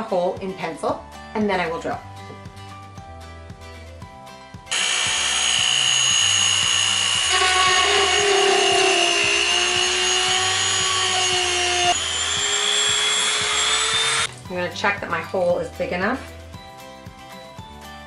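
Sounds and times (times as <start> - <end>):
rotary tool high whine: 4.7 - 14.3.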